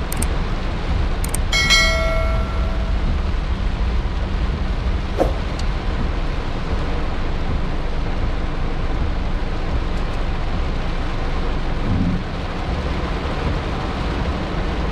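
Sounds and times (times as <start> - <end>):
heavy rain on car roof: 0.0 - 1.2, 5.7 - 14.9.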